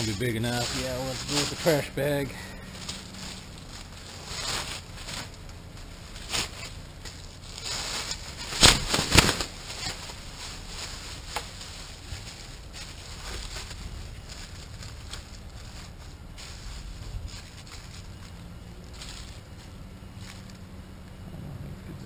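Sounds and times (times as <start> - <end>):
plastic bag swishes: 0.0 - 2.0, 2.8 - 20.4
plastic bag rustling: 0.0 - 20.8.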